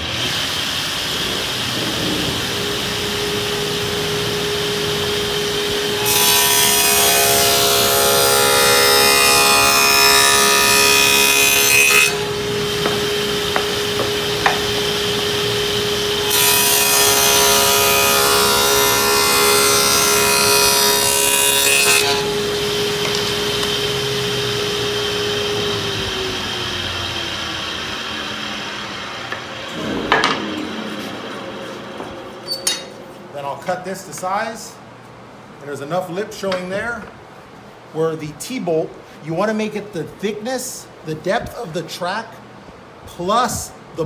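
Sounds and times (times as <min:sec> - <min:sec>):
saw winding down: 0:00.0 - 0:32.5
table saw cutting plywood: 0:00.0 - 0:32.5
knock: 0:12.8 - 0:14.7.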